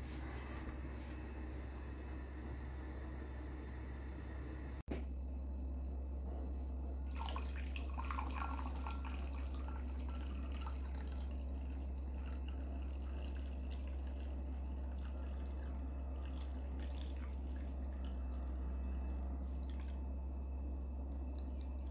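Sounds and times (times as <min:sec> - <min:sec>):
steady low hum: 0:00.0 - 0:21.9
liquid pouring into glass: 0:07.1 - 0:20.1.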